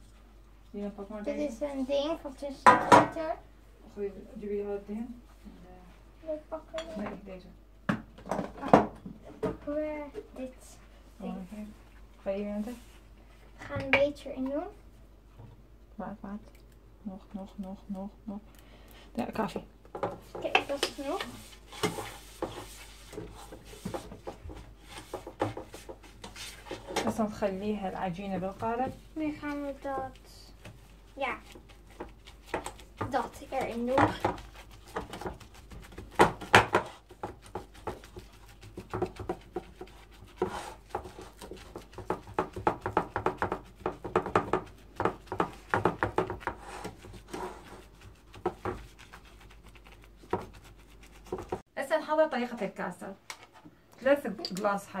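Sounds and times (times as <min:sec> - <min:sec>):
dough squishing and scraping: 0:19.4 - 0:51.7.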